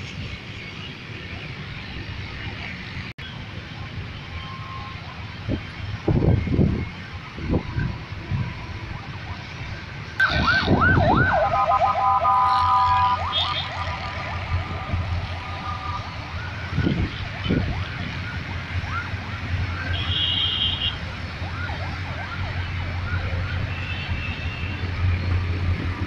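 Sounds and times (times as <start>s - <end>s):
emergency siren yelping: 10.2s - 26.0s.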